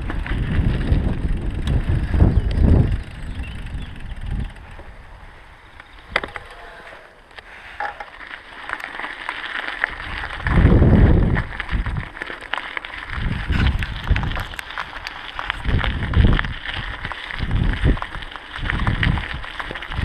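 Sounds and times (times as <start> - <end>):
wind buffeting microphone: 0.0 - 6.5, 9.9 - 12.2, 13.0 - 20.0
bike clicks and rattles: 0.0 - 20.0
bike tyres on gravel: 0.0 - 20.0.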